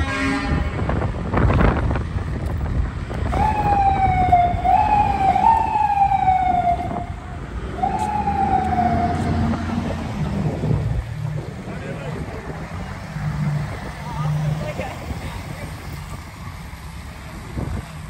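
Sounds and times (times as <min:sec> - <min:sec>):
low traffic rumble: 0:00.0 - 0:18.0
emergency vehicle siren: 0:03.2 - 0:10.8.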